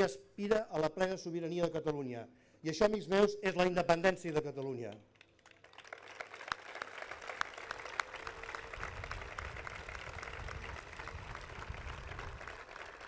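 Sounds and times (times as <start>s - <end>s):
crowd applauding: 5.2s - 13.0s.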